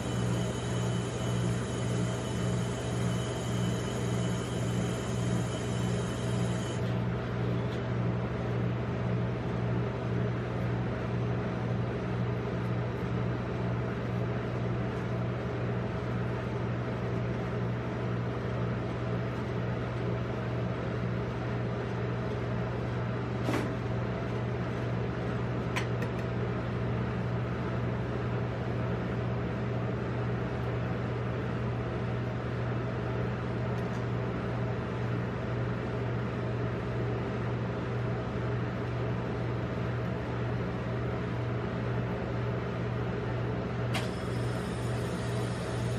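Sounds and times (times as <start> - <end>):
machine hum: 0.0 - 9.6.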